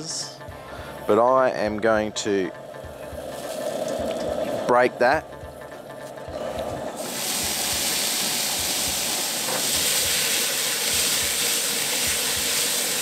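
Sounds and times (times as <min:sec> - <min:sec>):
meat frying in hot oil: 0:07.0 - 0:13.0.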